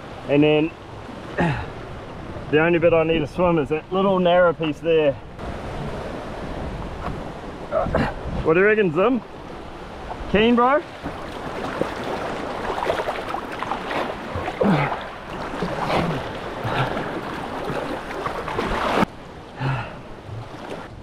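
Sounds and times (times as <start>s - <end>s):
sea water sloshing: 9.2s - 21.0s.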